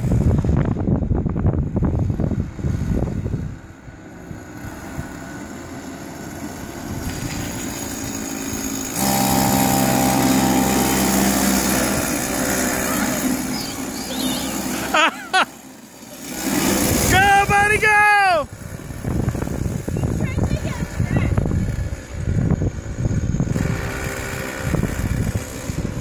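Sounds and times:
kart engine passing: 0:01.8 - 0:26.0
brief squeals: 0:12.7 - 0:14.9.

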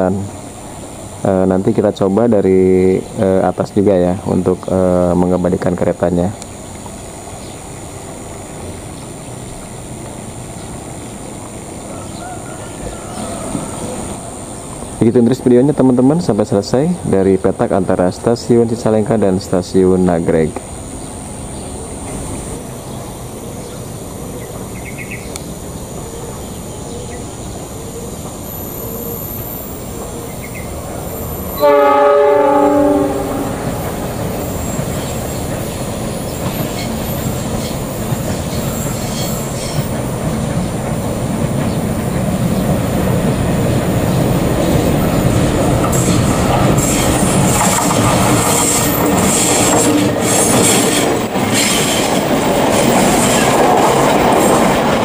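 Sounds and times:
locomotive engine rumble: 0:00.0 - 0:55.0
locomotive horn blast: 0:31.5 - 0:34.0
wheels clattering over rail joints: 0:32.5 - 0:55.0.

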